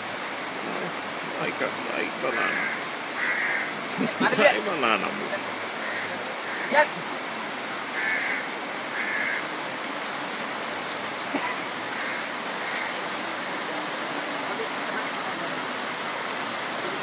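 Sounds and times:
river running over rapids: 0.0 - 17.0.

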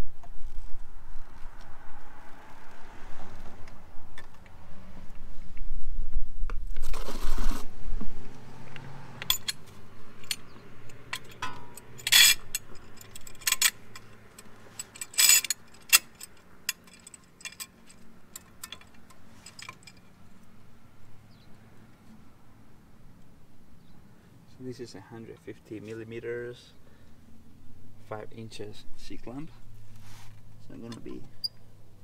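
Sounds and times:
metal clamp clicking and clinking: 9.2 - 20.1
metal clanks: 9.2 - 20.1.

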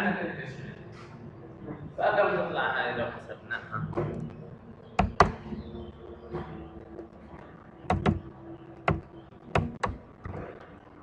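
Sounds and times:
faint steady hum: 0.0 - 11.0
keyboard keys clicking: 7.9 - 8.2.

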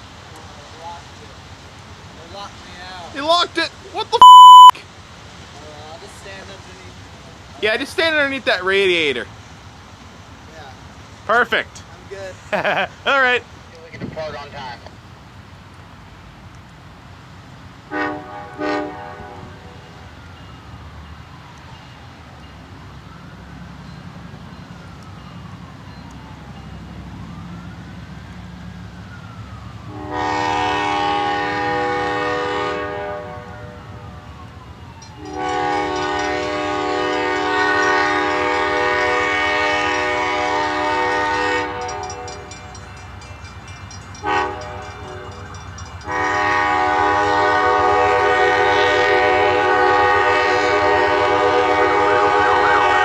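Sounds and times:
train air horn blasts: 17.9 - 20.0, 29.9 - 34.0, 35.2 - 42.5, 44.2 - 45.4, 46.0 - 53.0.

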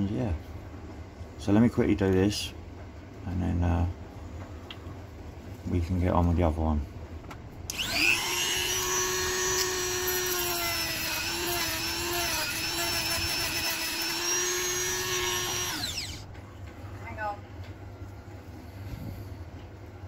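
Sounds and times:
rotary tool sanding plastic: 7.7 - 16.3.

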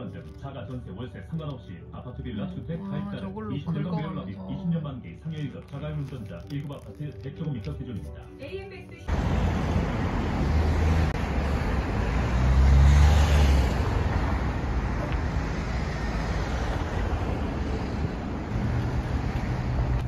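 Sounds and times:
road traffic: 0.0 - 2.4, 8.1 - 20.0
vehicle passing: 9.1 - 20.0.

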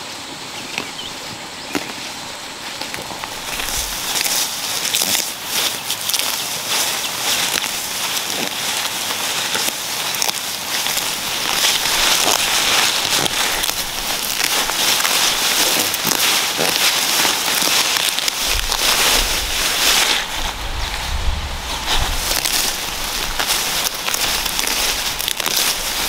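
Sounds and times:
leaves rustling and crackling: 0.0 - 26.0
low rumble: 18.4 - 25.3.

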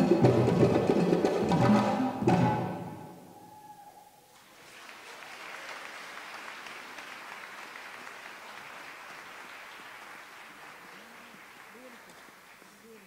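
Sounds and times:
congregation applauding: 4.3 - 13.0.

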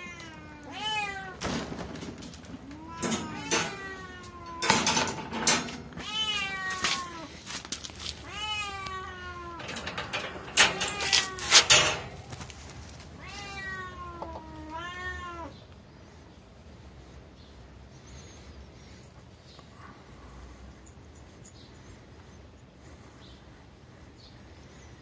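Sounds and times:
cat meowing: 0.0 - 1.4, 2.6 - 4.8, 5.9 - 7.3, 8.2 - 9.9, 13.2 - 15.6
pet pen latch clicking and rattling: 4.6 - 5.9, 9.6 - 12.2.

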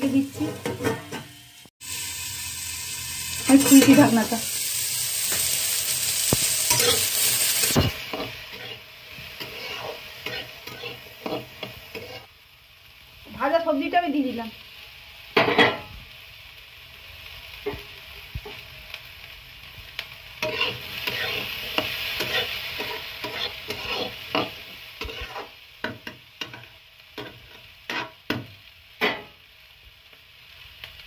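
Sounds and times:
metal spatula scraping a pan: 0.0 - 1.4, 6.2 - 12.3, 20.4 - 28.4, 29.0 - 29.4
oil sizzling: 0.0 - 31.0.

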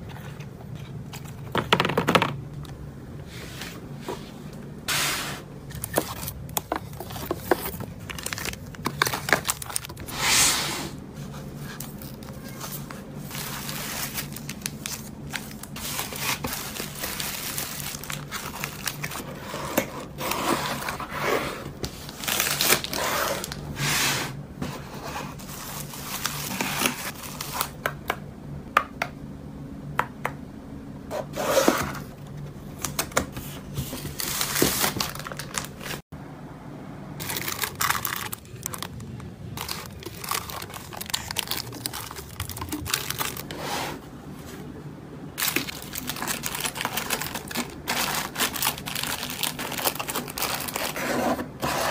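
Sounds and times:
bubble wrap crinkling: 5.7 - 10.2, 11.4 - 21.1, 21.8 - 23.6, 25.3 - 27.8, 33.9 - 36.0, 37.2 - 43.6, 45.4 - 51.9
cardboard box scraping: 31.1 - 32.1, 50.6 - 51.9.

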